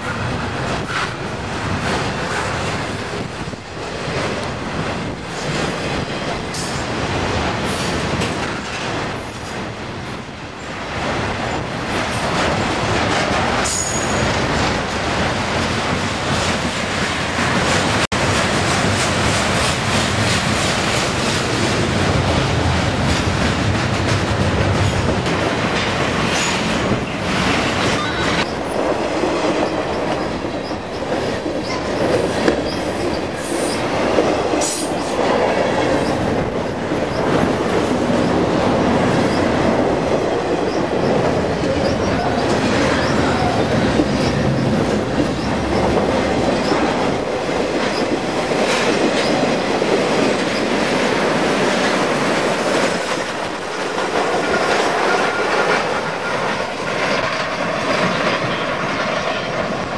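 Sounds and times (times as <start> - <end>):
freight train rumbling past: 0.0 - 59.9
wheels clattering over rail joints: 10.9 - 59.9.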